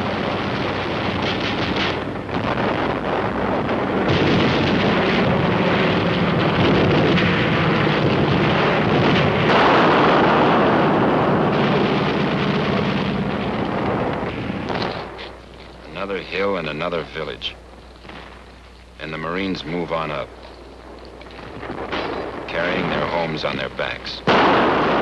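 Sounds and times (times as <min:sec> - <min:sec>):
explosions rumbling: 0:00.0 - 0:25.0.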